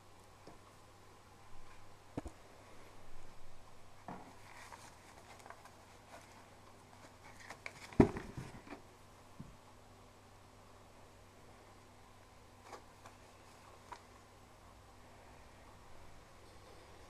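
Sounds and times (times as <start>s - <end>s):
paper rustling: 4.0s - 8.8s, 12.6s - 14.2s.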